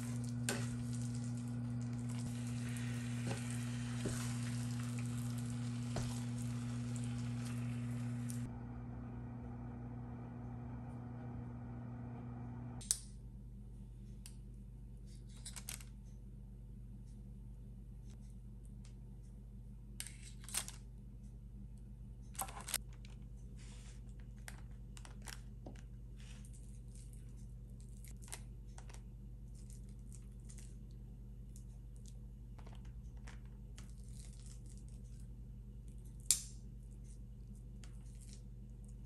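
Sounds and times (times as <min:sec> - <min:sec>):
steady low hum: 0:00.0 - 0:15.3.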